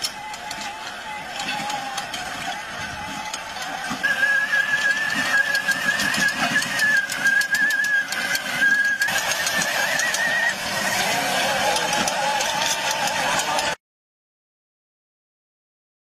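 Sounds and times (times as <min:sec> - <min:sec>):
electric motor whine: 0:00.0 - 0:13.8
steel wheels clicking and rattling: 0:00.0 - 0:13.8.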